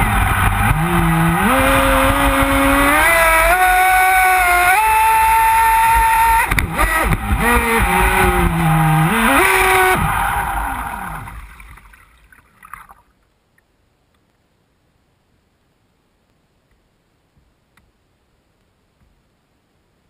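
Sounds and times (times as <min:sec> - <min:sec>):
electric motor whining: 0:00.0 - 0:11.4
faint ticks: 0:12.6 - 0:14.4, 0:18.6 - 0:19.2.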